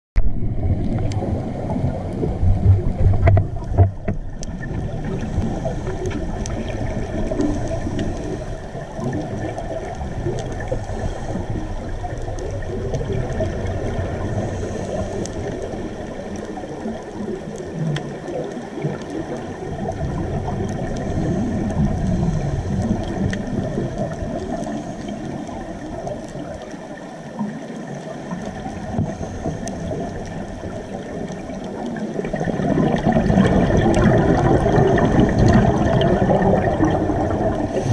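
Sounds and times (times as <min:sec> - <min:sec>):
muffled underwater rumble: 0:00.2 - 0:37.9
underwater gurgling: 0:00.2 - 0:37.9
faint clicks: 0:02.8 - 0:08.4, 0:14.9 - 0:34.1.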